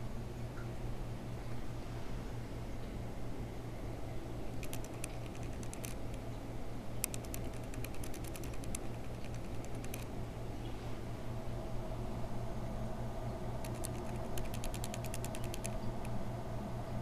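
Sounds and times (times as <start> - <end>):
steady low hum: 0.0 - 17.0
quick light clicks: 4.5 - 6.3, 7.0 - 10.1, 13.6 - 16.2.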